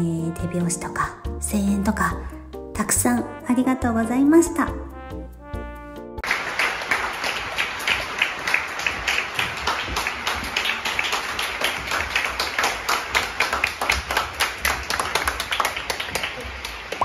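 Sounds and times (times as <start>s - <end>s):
people clapping: 6.2s - 17.0s.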